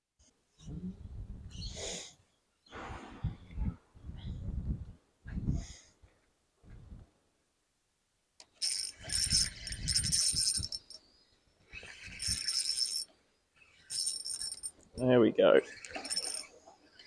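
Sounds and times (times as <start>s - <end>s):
fishing reel whirring and clicking: 8.4s - 11.0s, 11.7s - 14.8s, 15.7s - 17.0s.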